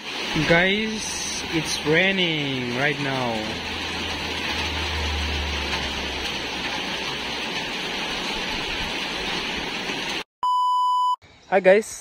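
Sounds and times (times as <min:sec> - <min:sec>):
rain on trees and paving: 0:00.0 - 0:10.2
steady electronic beep tone: 0:10.4 - 0:11.2.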